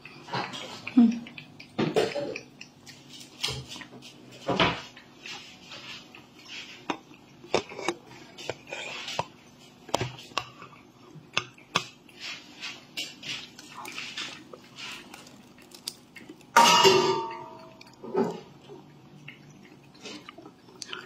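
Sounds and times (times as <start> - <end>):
cat lapping and chewing: 0.0 - 16.6, 17.4 - 21.0.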